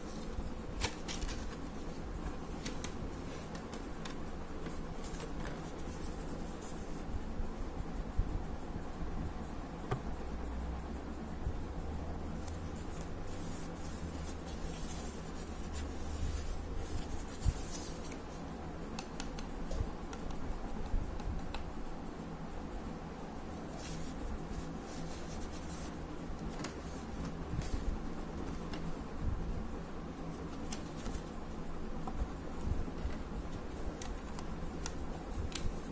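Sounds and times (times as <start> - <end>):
low room hum: 0.0 - 35.9
packaging rustling: 0.8 - 1.7.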